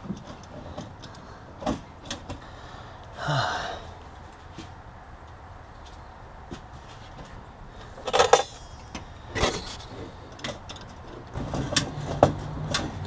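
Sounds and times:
metal brake line clinking: 7.8s - 13.0s.

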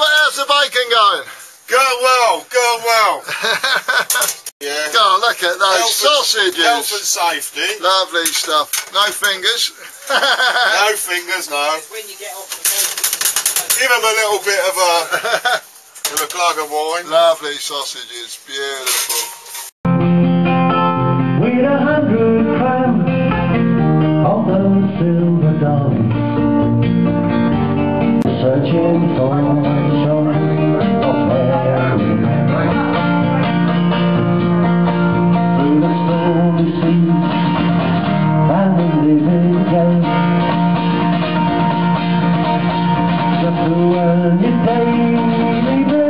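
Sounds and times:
man singing: 21.2s - 26.4s, 28.2s - 33.7s, 35.0s - 40.7s, 43.2s - 46.0s
classical guitar strummed and picked: 29.1s - 46.0s.

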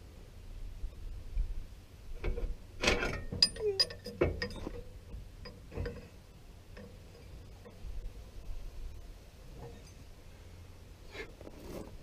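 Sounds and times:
tool clanking on metal: 2.2s - 6.1s.

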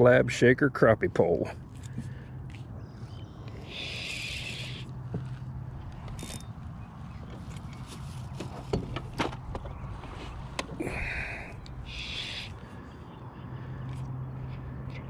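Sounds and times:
fishing reel whir: 3.5s - 4.8s
clicks and knocks against boat: 7.2s - 10.8s.

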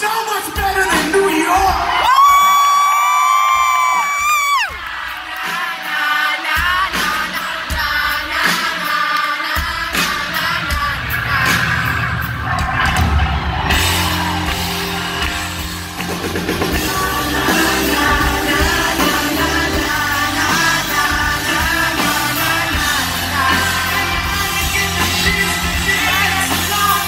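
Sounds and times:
live pop-rock band playing: 0.0s - 2.6s, 3.5s - 27.0s
person singing: 16.6s - 27.0s.

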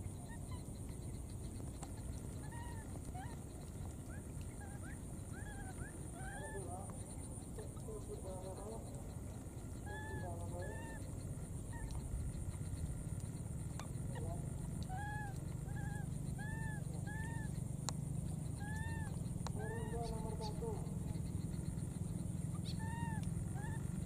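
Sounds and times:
low background rumble: 0.0s - 24.0s
baby monkey squeaking cries: 2.0s - 6.6s, 9.0s - 13.0s, 13.6s - 24.0s.

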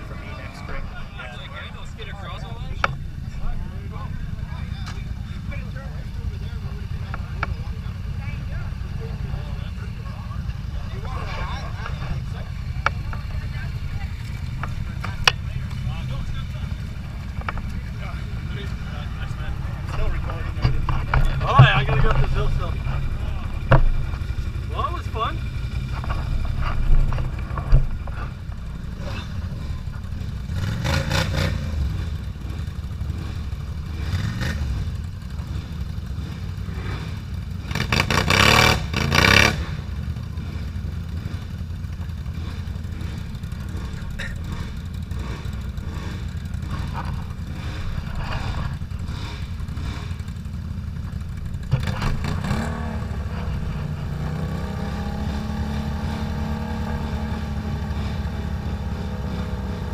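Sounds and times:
quad bike engines revving: 0.0s - 59.9s
quads churning through mud: 0.0s - 59.9s.

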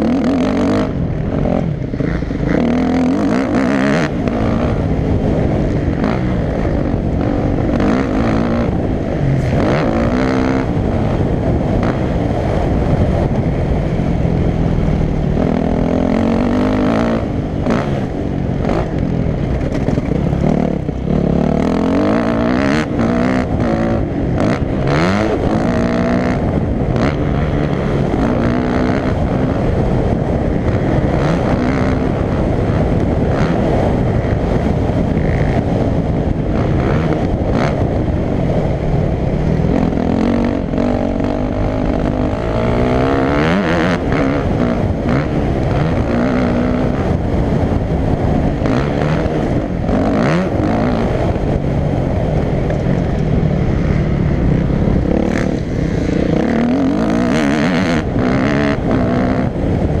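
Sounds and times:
dirt bike engine revving: 0.0s - 60.0s
wind noise on microphone: 0.0s - 60.0s.

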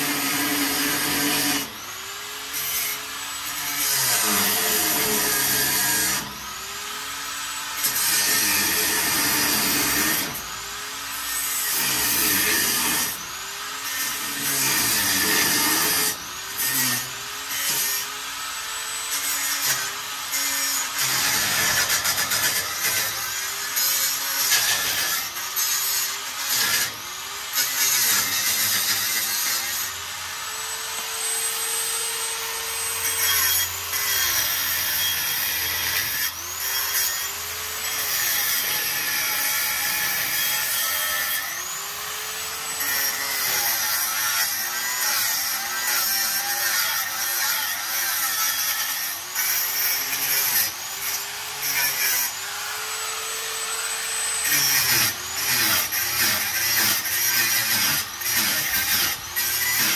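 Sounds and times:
power tool motor: 0.0s - 59.9s.

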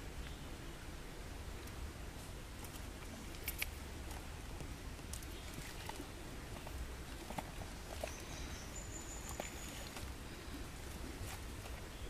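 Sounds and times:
hands handling wet food: 2.6s - 8.6s.

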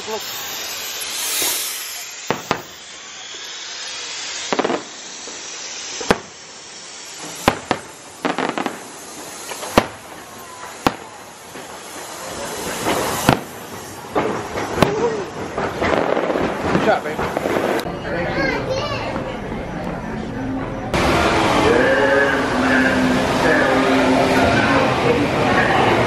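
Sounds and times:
firework bangs: 0.0s - 17.9s
firework crackling: 0.0s - 17.9s.

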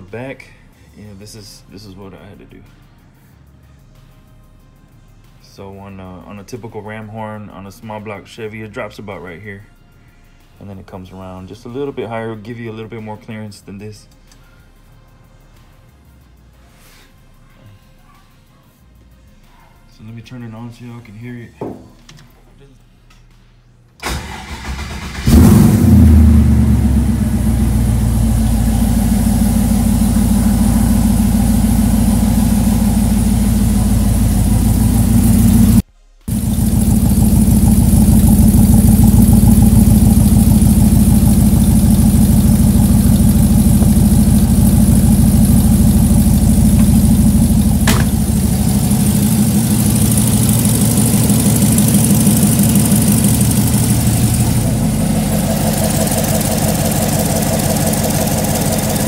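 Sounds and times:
car engine idling: 24.0s - 59.0s.

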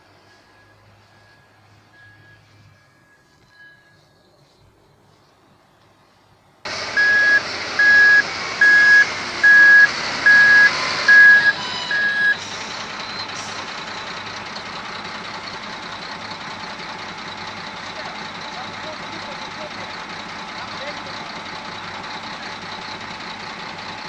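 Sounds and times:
reversing alarm beeping: 0.1s - 4.2s, 6.8s - 14.1s
loader engine running: 6.6s - 24.0s.

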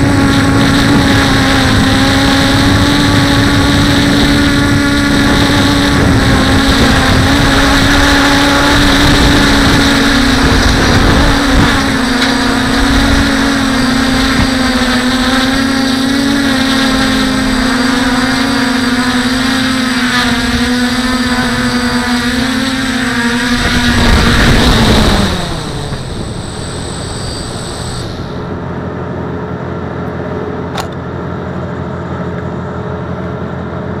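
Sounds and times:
wood chipper engine running: 0.0s - 34.0s.

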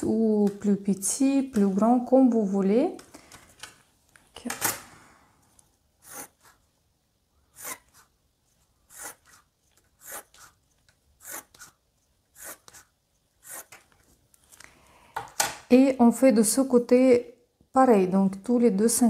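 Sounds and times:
pencil scratching on paper: 6.0s - 6.7s, 7.5s - 8.2s, 8.8s - 13.9s.

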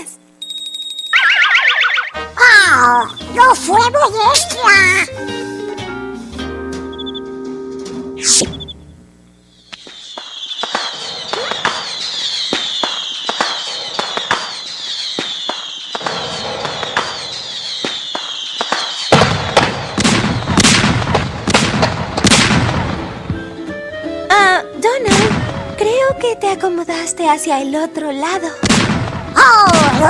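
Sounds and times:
cartoon firework whistles: 0.4s - 2.2s, 8.2s - 8.9s, 9.6s - 20.8s
firework bangs and crackling: 9.7s - 23.7s, 25.1s - 25.8s, 28.6s - 30.0s.

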